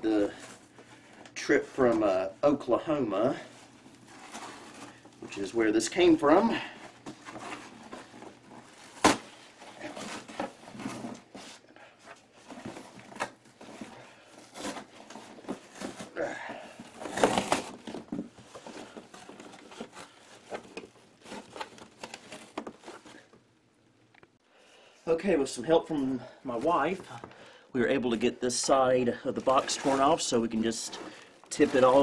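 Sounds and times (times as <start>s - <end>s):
cardboard rustling and scraping: 3.0s - 23.4s, 28.1s - 32.0s
cardboard ripping: 7.1s - 11.6s, 16.9s - 23.3s, 29.4s - 32.0s.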